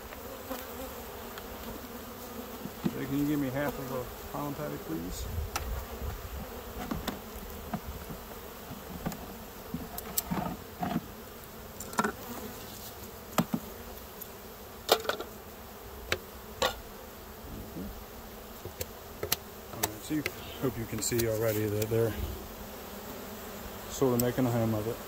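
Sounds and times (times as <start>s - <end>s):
honeybees buzzing: 0.0s - 25.0s
clicks and knocks of hive parts: 2.6s - 3.8s, 5.5s - 11.1s, 11.8s - 12.4s, 13.3s - 15.3s, 16.0s - 16.8s, 18.6s - 22.0s, 24.0s - 24.6s.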